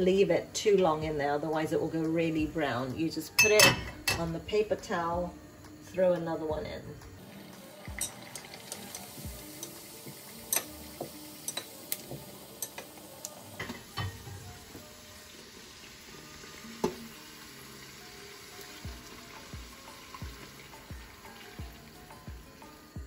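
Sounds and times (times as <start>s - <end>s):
food deep-frying in oil: 7.2s - 23.0s.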